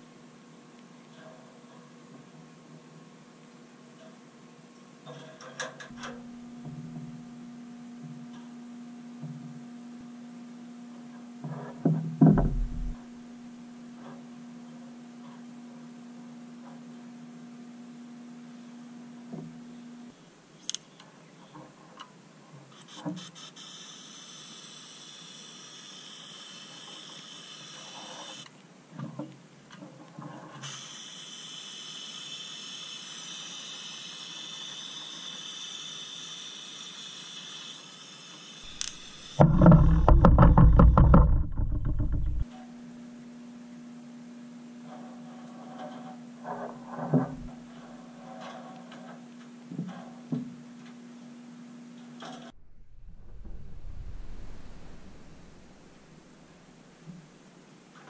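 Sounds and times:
electric hum: 5.9s - 11.4s, 12.2s - 13.9s, 38.6s - 44.7s, 52.4s - 57.0s
loud rumbling rush: 52.6s - 56.6s.

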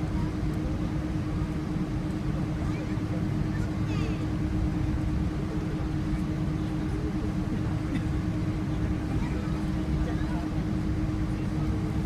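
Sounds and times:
airliner cabin rumble: 0.0s - 12.0s.

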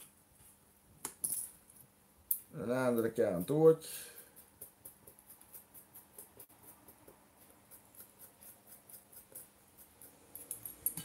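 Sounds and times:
metal tool ticking and scratching: 2.3s - 11.0s.

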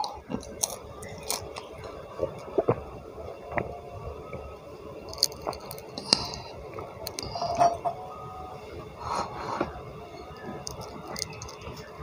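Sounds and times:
tableware knocking and clinking: 7.4s - 8.0s.

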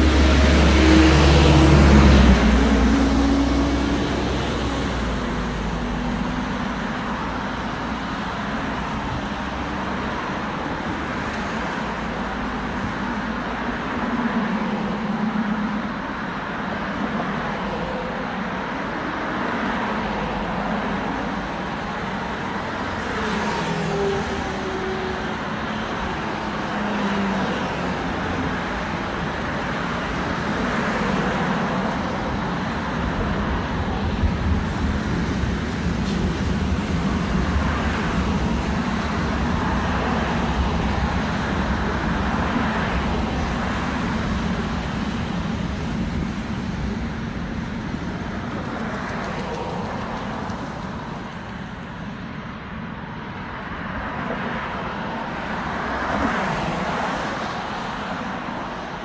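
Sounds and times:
car passing: 0.0s - 16.0s, 19.4s - 52.6s
road traffic noise: 0.0s - 59.0s.

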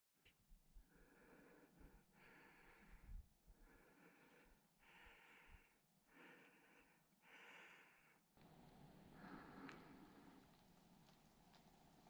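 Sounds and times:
faint breathing: 0.8s - 11.6s.

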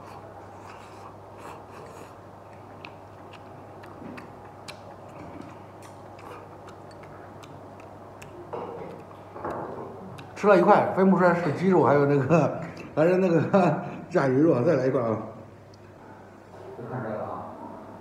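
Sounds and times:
soft chewing: 0.0s - 10.7s, 15.6s - 16.6s.

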